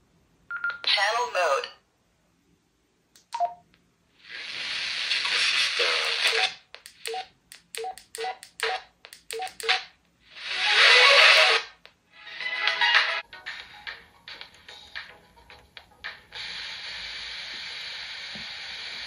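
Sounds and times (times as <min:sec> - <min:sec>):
short keypad beeps: 0:03.4 - 0:03.6
radio static hiss: 0:04.2 - 0:06.7, 0:16.3 - 0:19.0.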